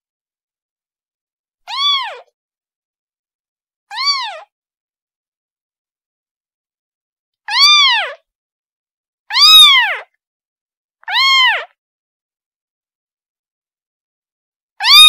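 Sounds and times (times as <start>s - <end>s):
kitten meowing: 1.7s - 2.3s, 3.9s - 4.5s, 7.5s - 8.2s, 9.3s - 10.1s, 11.0s - 11.8s.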